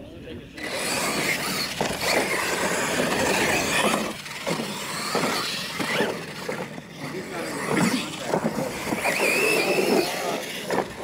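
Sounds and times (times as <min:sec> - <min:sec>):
electric toy truck drivetrain whine: 0:00.6 - 0:11.0.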